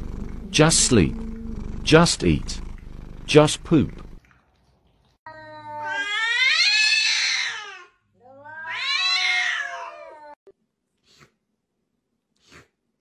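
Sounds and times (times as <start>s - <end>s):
cat yowling: 5.3s - 10.4s.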